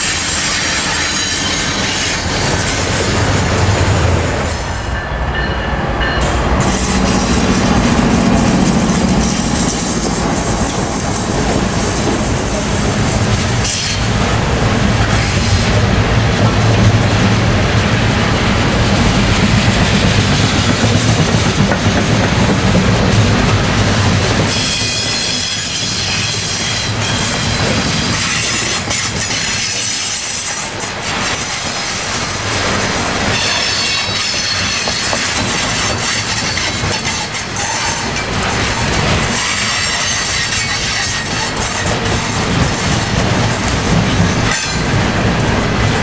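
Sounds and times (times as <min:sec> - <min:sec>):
high wheel squeal: 0:00.0 - 0:03.0, 0:24.5 - 0:32.0, 0:33.3 - 0:43.0
train wheels clattering over rails: 0:00.0 - 0:46.0.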